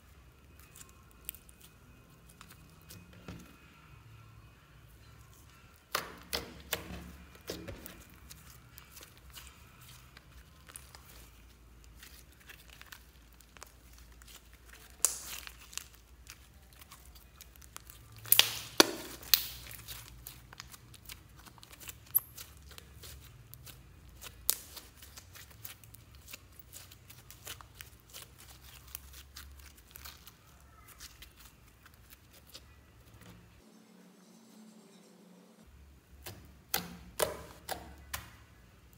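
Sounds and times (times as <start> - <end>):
slime crackling and popping: 0.4 - 3.1, 5.8 - 32.7
slime snapping: 14.9 - 15.9, 17.7 - 19.8.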